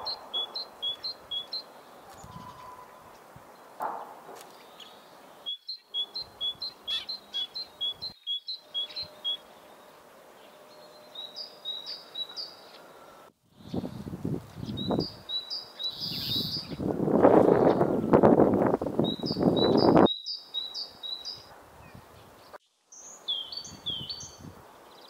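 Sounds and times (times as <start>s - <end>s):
bird singing two-note song: 2.2s - 3.0s, 5.4s - 13.8s
wind buffeting microphone: 13.5s - 20.1s, 23.6s - 24.7s.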